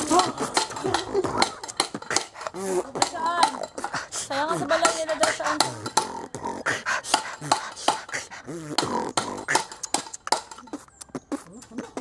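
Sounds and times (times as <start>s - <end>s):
sharp clicks and knocks: 0.0s - 4.0s, 4.8s - 6.2s, 7.1s - 10.9s.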